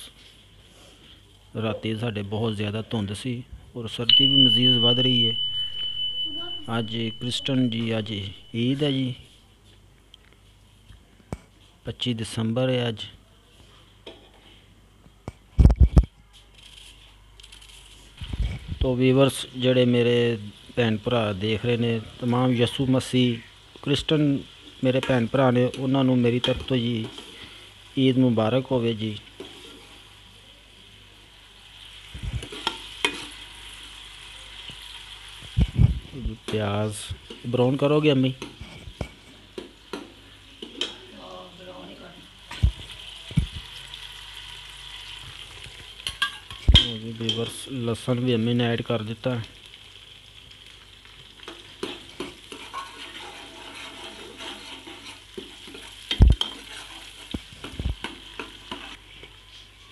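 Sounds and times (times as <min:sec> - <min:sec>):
onions sizzling in a pot: 0:04.1 - 0:09.3, 0:17.8 - 0:59.9
ladle scraping pot: 0:51.8 - 0:57.3.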